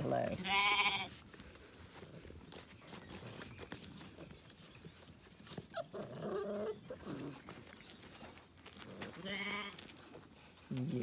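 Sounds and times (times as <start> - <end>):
puppy whining: 5.4 - 7.7.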